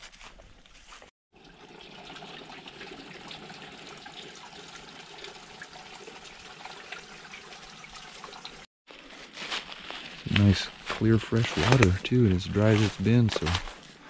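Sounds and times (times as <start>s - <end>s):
water trickling into pool: 1.3s - 8.7s.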